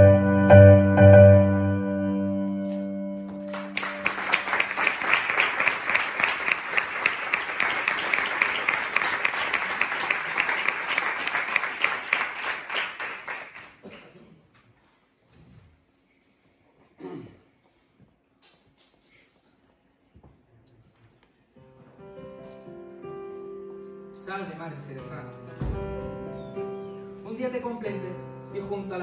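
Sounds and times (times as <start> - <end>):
piano notes ringing: 0.0 - 4.5, 21.6 - 29.0
audience applauding: 3.4 - 14.2.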